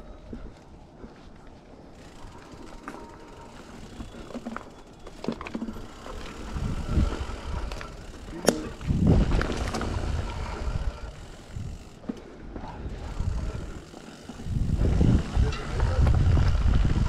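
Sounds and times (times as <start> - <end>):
bike clicks and rattles: 0.0 - 17.0
bike tyres on dirt and leaves: 0.0 - 17.0
wind rumbling on microphone: 6.0 - 17.0.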